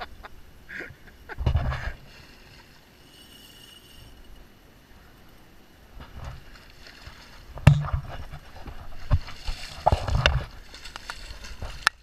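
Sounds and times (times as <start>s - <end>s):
knocks and thumps: 7.6s - 8.4s.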